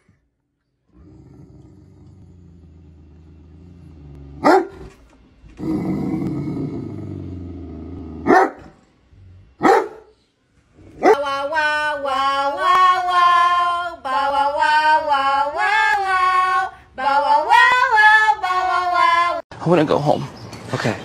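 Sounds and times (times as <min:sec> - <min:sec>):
dog grumbling low: 0:00.9 - 0:04.6, 0:05.6 - 0:08.3
dog barking: 0:04.4 - 0:04.9, 0:08.2 - 0:08.8, 0:09.6 - 0:10.1, 0:11.0 - 0:11.3
person singing: 0:11.0 - 0:19.4.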